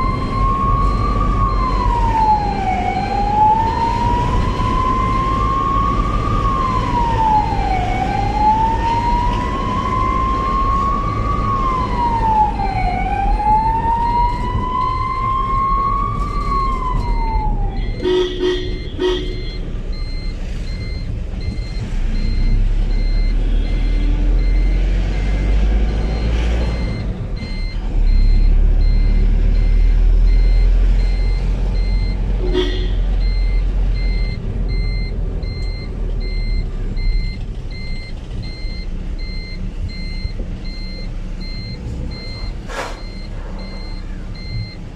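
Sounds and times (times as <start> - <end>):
short siren blasts: 0.0 - 19.6
ambulance siren wailing: 0.0 - 44.9
engine and road rumble: 0.0 - 44.9.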